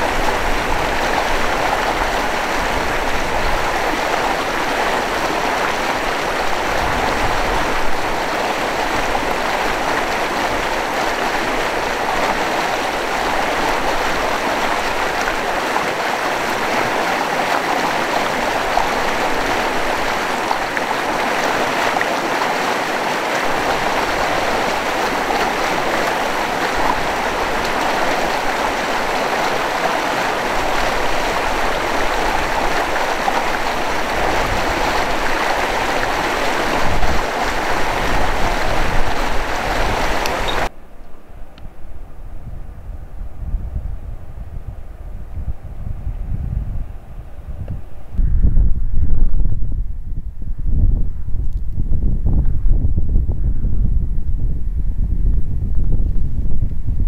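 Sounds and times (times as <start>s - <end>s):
water rushing past rocks: 0.0s - 40.8s.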